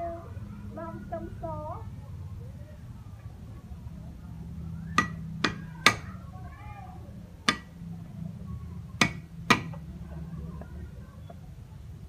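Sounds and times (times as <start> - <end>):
cleaver chopping on wooden board: 5.0 - 6.1, 7.5 - 7.8, 9.0 - 9.8.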